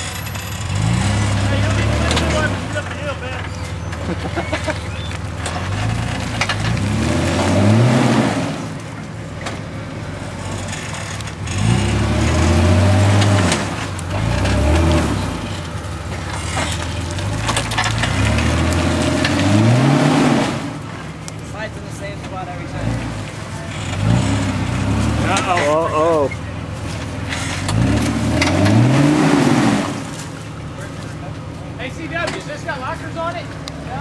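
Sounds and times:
car engine revving: 0:00.0 - 0:34.0.

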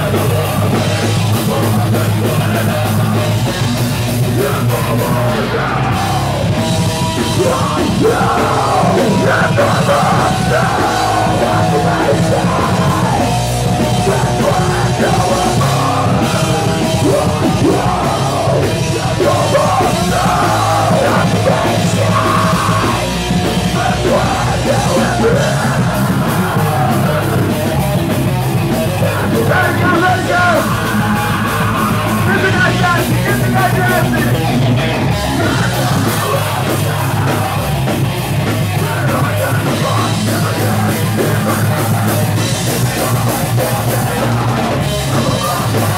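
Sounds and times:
heavy rock band playing: 0:00.0 - 0:45.9
vocalist yelling: 0:07.2 - 0:13.4, 0:29.0 - 0:37.8.

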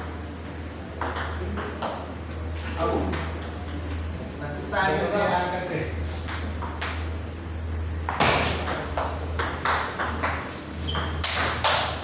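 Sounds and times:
table tennis ball hits: 0:01.0 - 0:02.1, 0:02.9 - 0:03.9, 0:06.2 - 0:07.1, 0:08.0 - 0:12.0.

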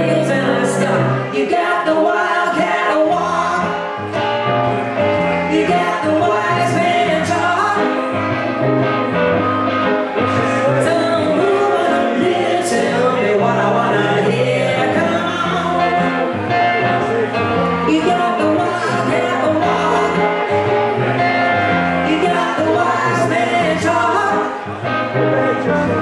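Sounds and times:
bass line: 0:00.0 - 0:01.3, 0:03.0 - 0:26.0
electric guitar: 0:00.0 - 0:26.0
electric keyboard: 0:00.0 - 0:26.0
man singing: 0:05.5 - 0:08.2, 0:10.3 - 0:20.7, 0:22.0 - 0:26.0.

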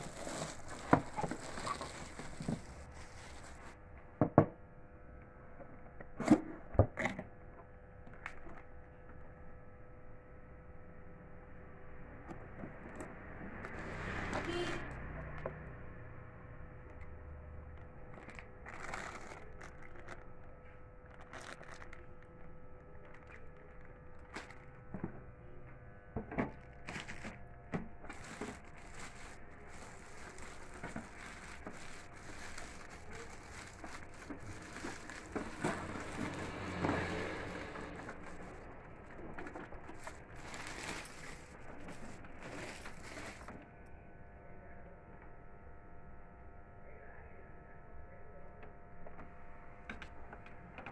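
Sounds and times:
plastic packaging crinkling: 0:00.0 - 0:03.8, 0:17.7 - 0:25.2, 0:26.4 - 0:43.6.

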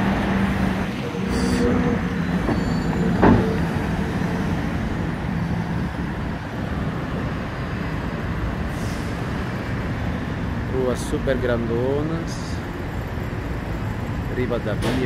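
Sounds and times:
cars driving through intersection: 0:00.0 - 0:15.0.

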